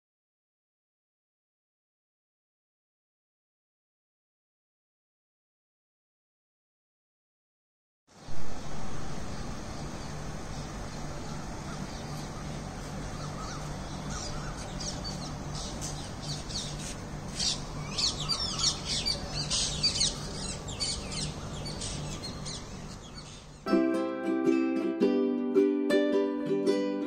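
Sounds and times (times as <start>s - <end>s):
steady low hum: 8.1s - 23.7s
birds chirping: 9.0s - 23.7s.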